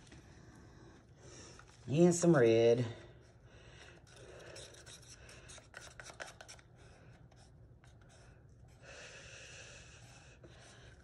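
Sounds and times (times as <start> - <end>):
paint tools scraping and tapping: 4.1 - 6.6.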